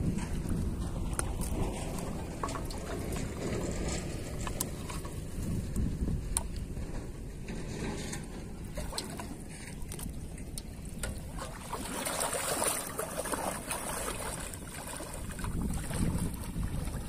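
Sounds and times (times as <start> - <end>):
steady low rumble: 0.0 - 17.0
person wading through water: 0.6 - 5.4, 8.6 - 17.0.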